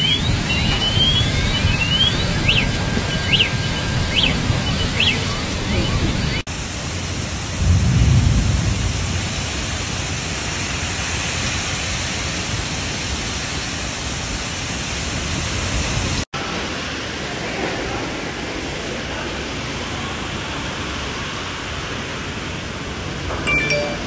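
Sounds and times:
torrential rain and wind: 0.0 - 24.0
low rumble: 7.3 - 10.6.

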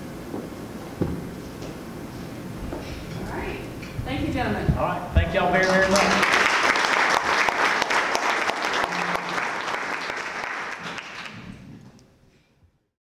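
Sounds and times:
audience applauding: 5.6 - 11.6.

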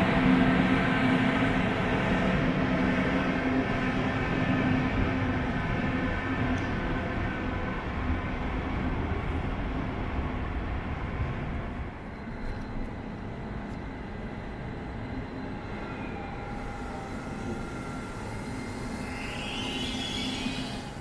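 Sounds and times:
train rumbling by: 0.0 - 21.0
faint thin whistling tones: 14.8 - 21.0.

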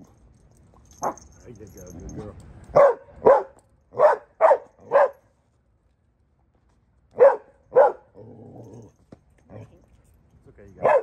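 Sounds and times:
dog barking: 2.8 - 5.2, 7.2 - 8.1, 10.8 - 11.0.

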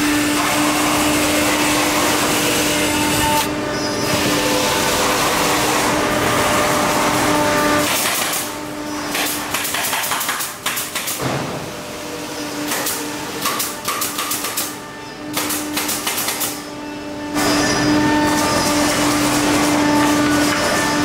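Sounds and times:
nail gun clacks: 7.8 - 8.5, 9.1 - 11.3, 12.7 - 14.7, 15.3 - 16.6.

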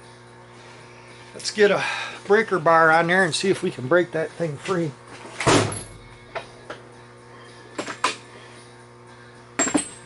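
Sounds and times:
faint music: 0.0 - 10.0
loud metallic clatter of tools: 9.6 - 10.0.

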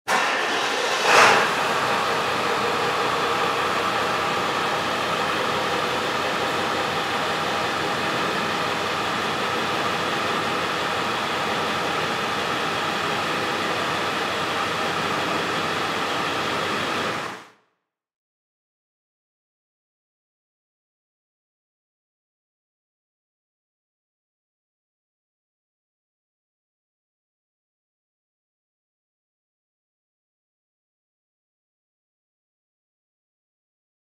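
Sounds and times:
engine idling: 0.1 - 17.5.

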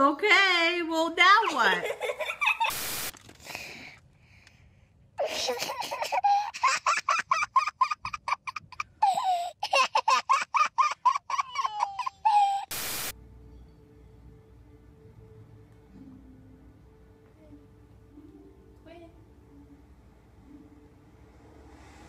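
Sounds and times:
little girl giggling: 1.5 - 2.7, 5.2 - 12.7
burst of hiss: 2.7 - 3.1, 12.7 - 13.1.

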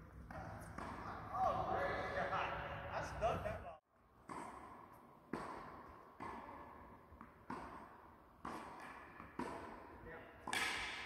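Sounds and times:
tennis ball bouncing on court: 0.3 - 1.2, 4.2 - 11.0
tennis ball hit by racket: 0.3 - 1.2, 4.2 - 11.0.

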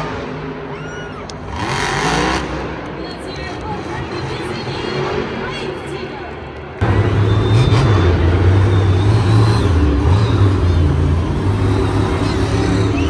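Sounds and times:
loud truck engine revving: 1.3 - 3.0, 6.8 - 13.0.

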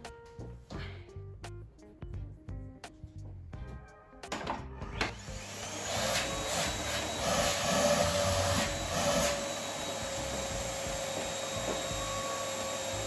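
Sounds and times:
vacuum cleaner motor whining: 5.1 - 13.0.

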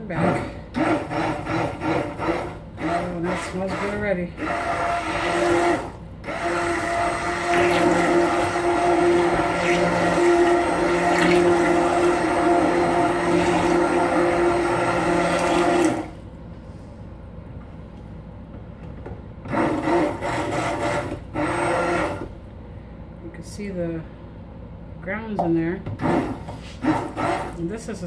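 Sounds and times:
stick blender running: 0.0 - 16.2, 19.5 - 22.3, 26.0 - 27.6.

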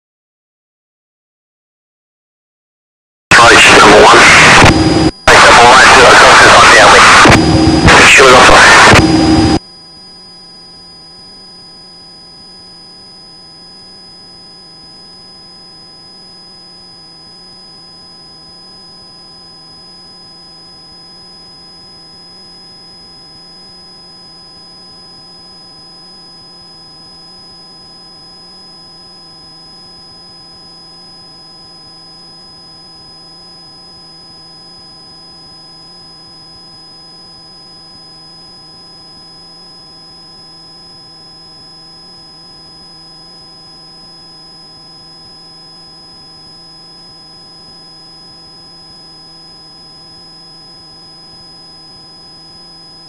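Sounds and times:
electrical hum and whine: 3.3 - 19.4.

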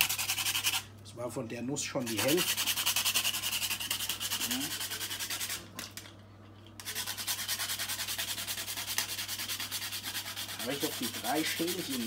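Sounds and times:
nutmeg scraping on grater: 2.0 - 5.6, 6.8 - 12.0.

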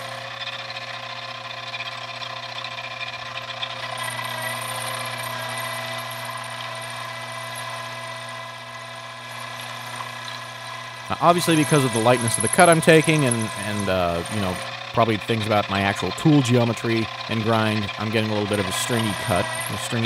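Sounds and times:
metal lathe running: 0.0 - 20.0.

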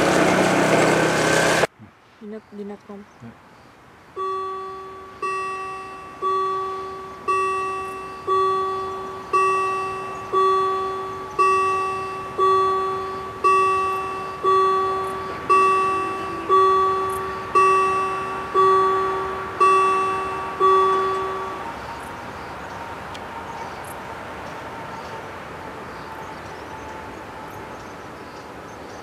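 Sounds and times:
level crossing bell ringing: 4.2 - 21.9.

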